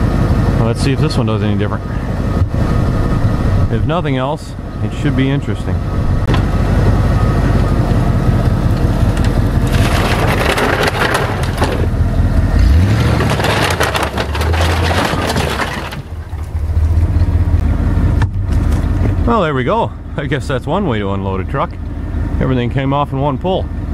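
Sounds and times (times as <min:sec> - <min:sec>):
pickup truck engine running: 0:00.0 - 0:23.9
metal scraping and crashing: 0:07.6 - 0:17.6.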